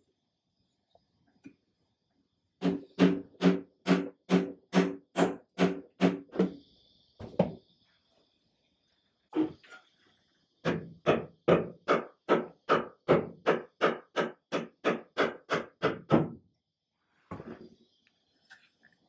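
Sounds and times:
rubber mallet striking wood: 0:02.6 - 0:06.3.

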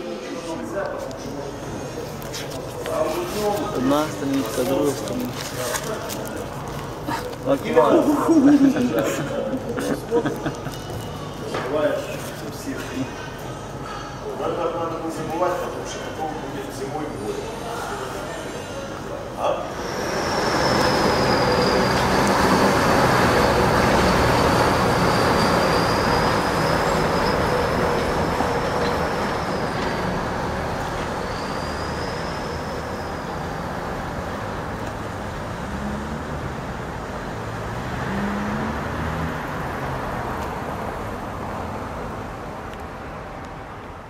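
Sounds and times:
diesel engine and tyre noise: 0:19.7 - 0:44.0.

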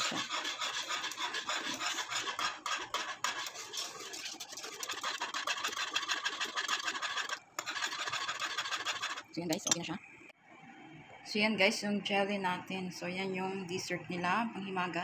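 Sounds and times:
metal utensil scraping a pot: 0:00.0 - 0:09.9.

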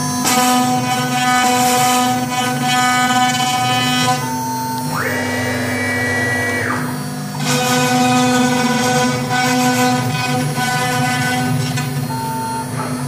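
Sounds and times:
router spindle whine: 0:00.0 - 0:13.0.

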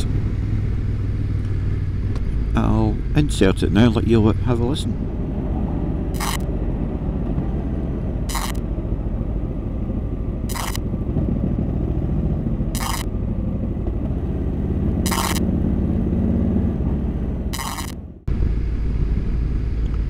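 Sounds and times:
steady low rumble: 0:00.0 - 0:20.0
short electronic chirp: 0:15.1 - 0:15.4.

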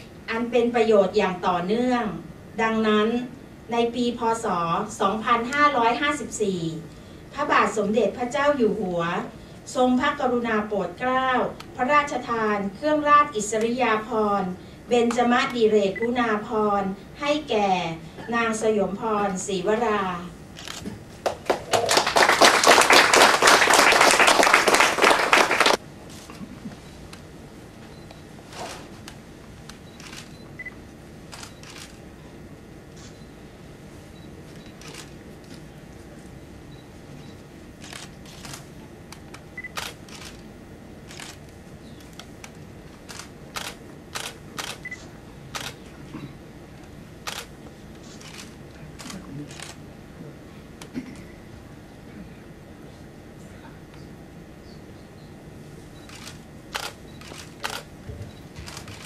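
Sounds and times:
low room hum: 0:00.0 - 0:59.0
camera shutters clicking: 0:20.6 - 0:21.0, 0:30.0 - 0:30.4, 0:31.3 - 0:32.0, 0:34.8 - 0:35.2, 0:37.8 - 0:38.6, 0:39.2 - 0:40.4, 0:41.1 - 0:45.8, 0:47.2 - 0:47.5, 0:48.1 - 0:49.8, 0:56.1 - 0:57.9, 0:58.6 - 0:59.0
audience applauding: 0:21.2 - 0:25.8.

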